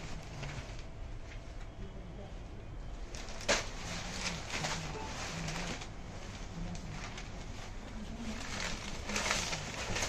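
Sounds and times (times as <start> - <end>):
cloth rustling: 3.1 - 10.0.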